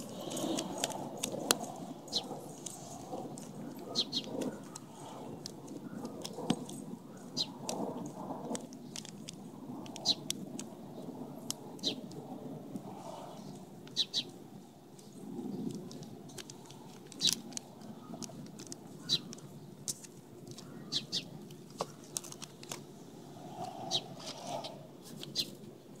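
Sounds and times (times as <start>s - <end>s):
plastic sheets crinkling: 15.6s - 20.7s, 21.4s - 22.9s.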